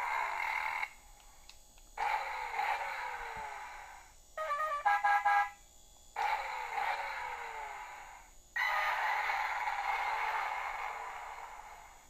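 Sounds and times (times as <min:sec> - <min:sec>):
hissing bursts with falling tone: 0:06.2 - 0:12.0.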